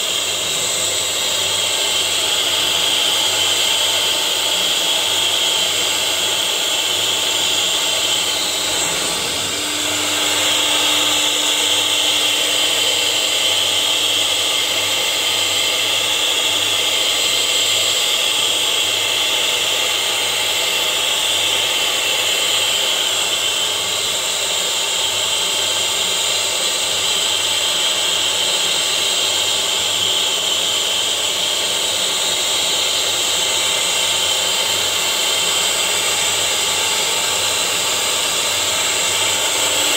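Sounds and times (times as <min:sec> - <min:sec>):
router spindle whine and cutting: 0:00.0 - 0:39.9.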